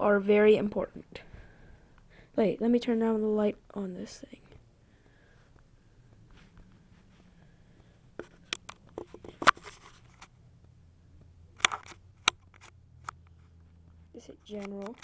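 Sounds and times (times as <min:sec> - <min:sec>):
device handling clicks and taps: 0:11.6 - 0:13.3.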